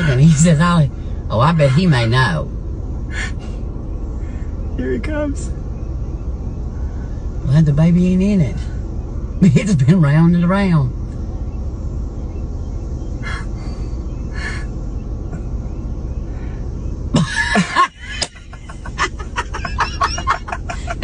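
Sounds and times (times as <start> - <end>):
person's voice: 0.0 - 2.4
low rumble: 0.0 - 21.0.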